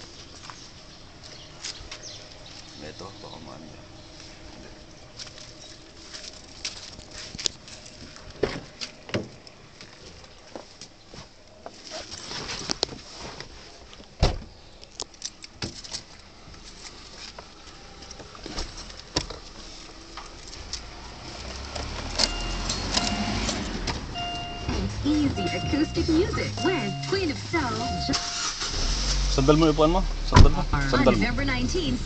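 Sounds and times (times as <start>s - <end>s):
loud thump: 30.3s - 30.7s.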